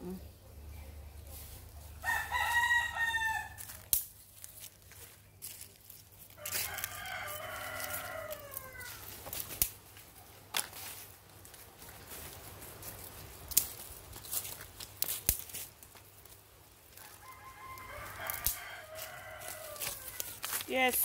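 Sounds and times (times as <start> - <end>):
rooster crowing: 2.0 - 3.8, 6.3 - 9.2, 16.9 - 20.6
sharp snaps: 3.6 - 4.2.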